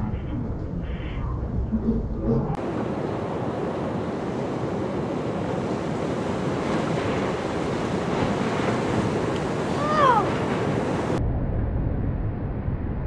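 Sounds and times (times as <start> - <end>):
waves breaking: 2.6 - 11.2
whitewater rushing: 2.6 - 11.2.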